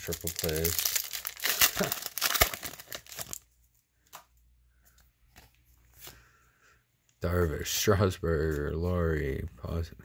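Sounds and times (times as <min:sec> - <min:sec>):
foil wrapper tearing and crinkling: 0:00.0 - 0:03.5
cards rustling: 0:00.0 - 0:06.3.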